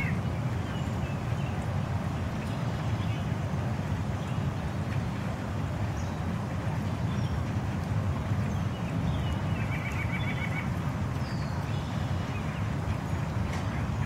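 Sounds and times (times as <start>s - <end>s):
rain: 0.0s - 14.0s.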